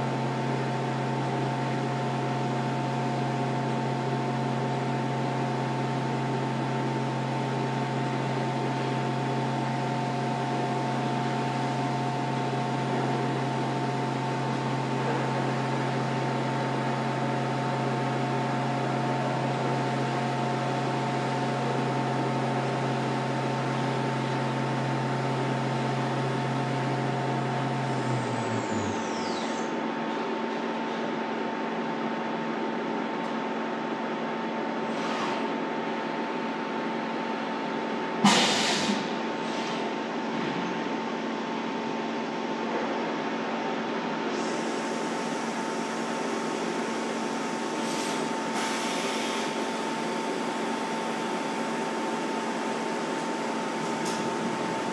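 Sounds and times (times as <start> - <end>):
milling machine humming: 23.4 - 30.2
spindle whine falling in pitch: 26.9 - 29.8
machine hiss: 27.3 - 29.8, 38.2 - 39.9, 44.3 - 50.6.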